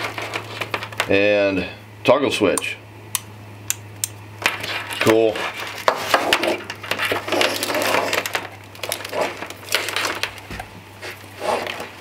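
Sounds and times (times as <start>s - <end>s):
wires rustling and scraping: 0.0s - 1.3s, 4.4s - 12.0s.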